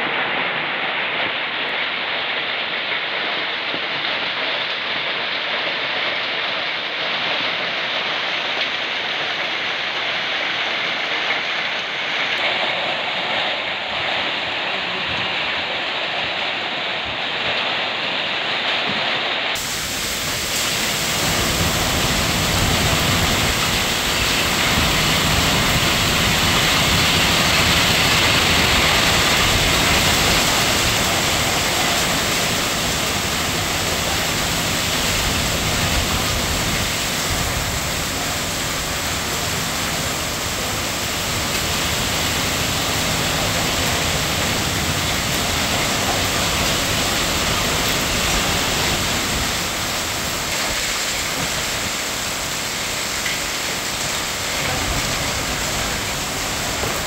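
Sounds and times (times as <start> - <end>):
hail and rain on pavement: 0.0 - 57.0.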